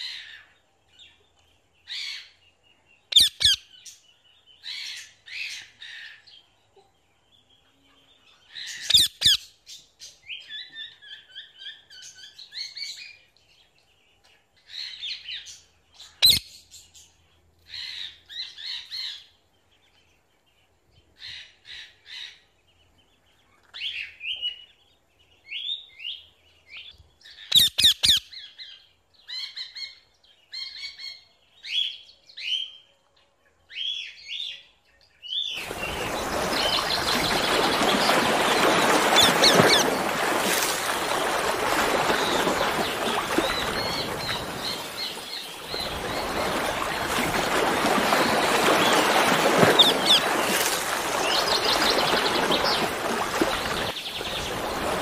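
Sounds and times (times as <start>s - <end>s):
parrots chirping and whistling: 35.7s - 39.9s.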